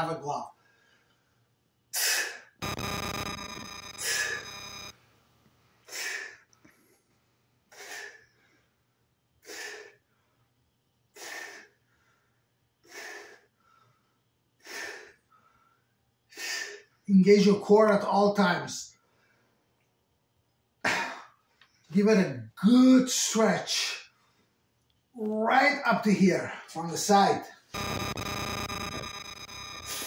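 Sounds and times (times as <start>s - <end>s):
buzzing noise: 2.6s - 5.0s, 27.7s - 30.0s
man breathing hard: 5.8s - 6.8s, 7.7s - 8.8s, 9.4s - 10.5s, 11.1s - 16.9s.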